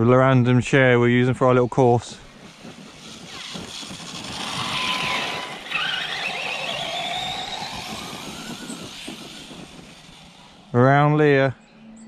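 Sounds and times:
electric motor whining: 0:02.2 - 0:11.2.

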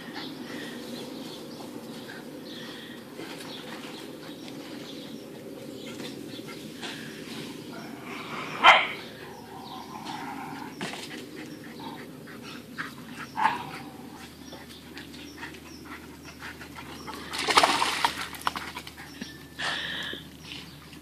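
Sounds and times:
dog barking: 0:08.6 - 0:09.0.

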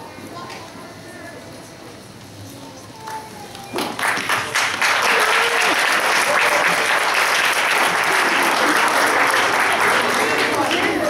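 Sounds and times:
audience applauding: 0:03.8 - 0:11.0
voices: 0:08.1 - 0:11.0.

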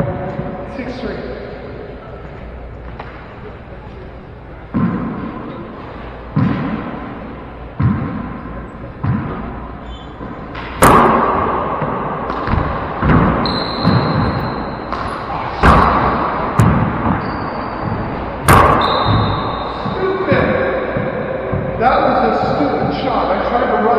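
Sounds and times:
echoing ball smacks on walls: 0:06.3 - 0:07.0, 0:07.8 - 0:08.4, 0:09.0 - 0:09.6, 0:10.5 - 0:22.0
ball bouncing on floor: 0:09.0 - 0:09.4, 0:11.8 - 0:21.8
sneakers squeaking on wooden floor: 0:09.8 - 0:10.7, 0:12.4 - 0:15.8, 0:16.6 - 0:20.8.

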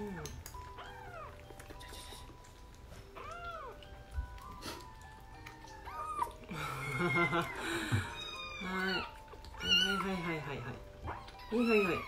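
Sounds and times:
soft background music: 0:00.0 - 0:12.0
kitten mewing: 0:05.7 - 0:10.3.

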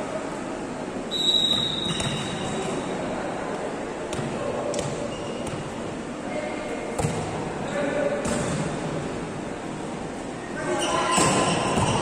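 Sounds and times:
background chatter: 0:00.0 - 0:12.0
referee's whistle: 0:01.1 - 0:02.6.

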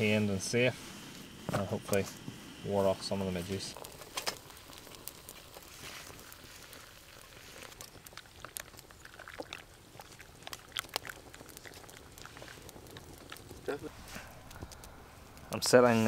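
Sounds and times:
twigs crackling in stove: 0:00.0 - 0:16.0
water pouring into mug: 0:03.8 - 0:13.7.

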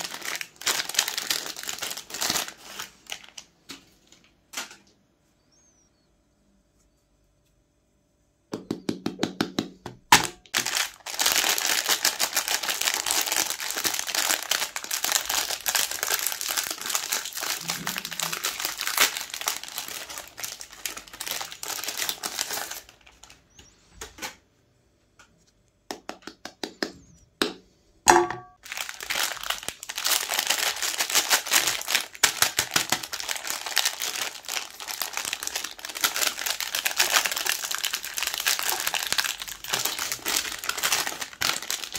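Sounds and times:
plastic wrappers crinkling and tearing: 0:00.0 - 0:04.7, 0:10.1 - 0:23.7, 0:28.6 - 0:41.9.

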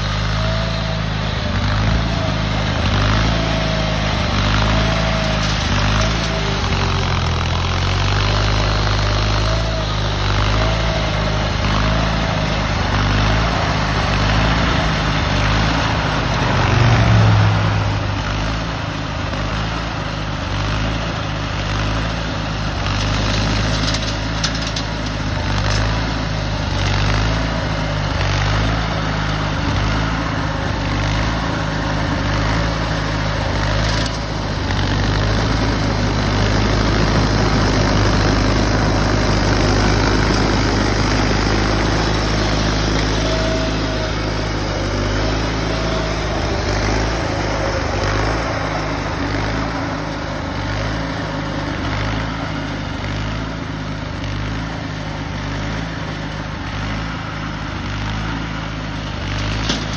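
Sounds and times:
garden tractor engine running: 0:00.0 - 0:59.9.

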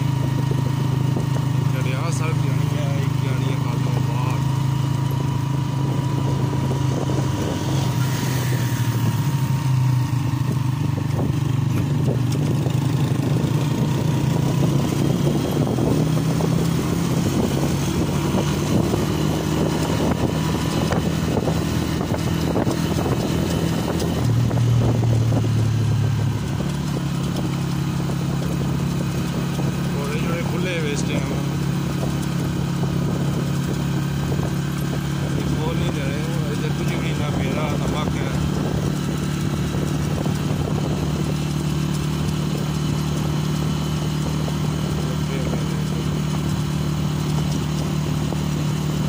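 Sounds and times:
motorcycle engine running: 0:00.0 - 0:49.0.

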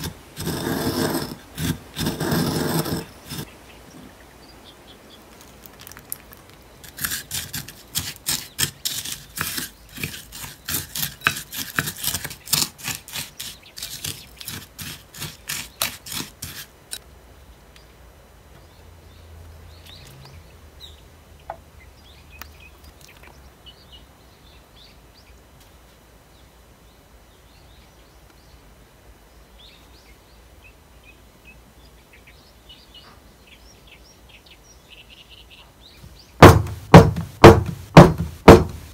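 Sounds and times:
utensil scraping glass bowl: 0:00.0 - 0:03.5, 0:06.8 - 0:17.0.

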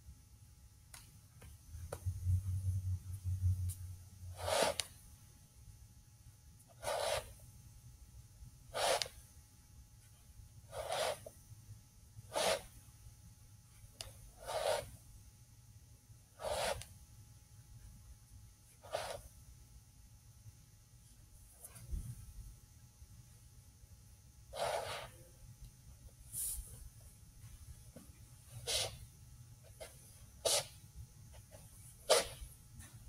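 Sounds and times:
low rumble: 0:02.0 - 0:04.0.

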